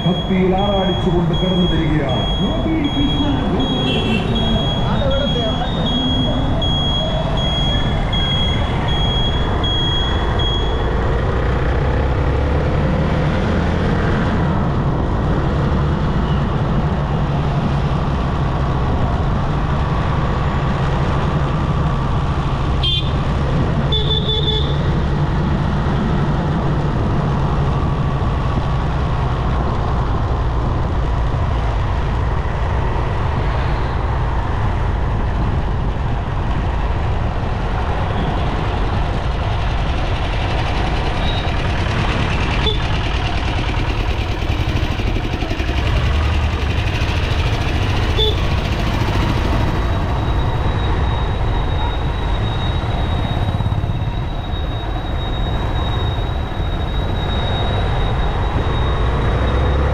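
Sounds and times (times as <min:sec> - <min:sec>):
high beeping: 0:00.0 - 0:11.0
motorcycle engine and wind: 0:00.0 - 0:59.9
vehicle horn toot: 0:03.7 - 0:04.5, 0:22.8 - 0:23.1, 0:42.6 - 0:42.9, 0:48.2 - 0:48.4.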